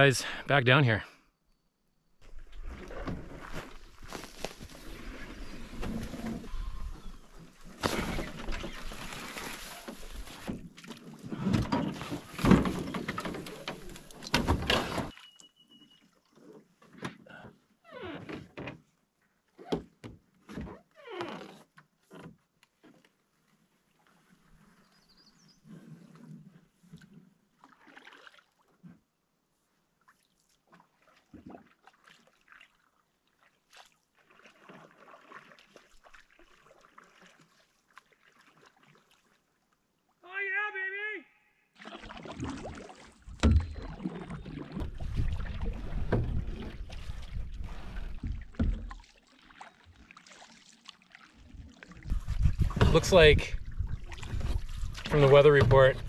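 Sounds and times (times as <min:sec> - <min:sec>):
canoe hull knocking and scraping: 0:02.2 - 0:15.1, 0:41.9 - 0:49.1, 0:52.0 - 0:56.0
splashing in shallow water: 0:02.2 - 0:16.8, 0:26.9 - 0:28.8, 0:30.0 - 0:40.0, 0:41.8 - 0:56.0.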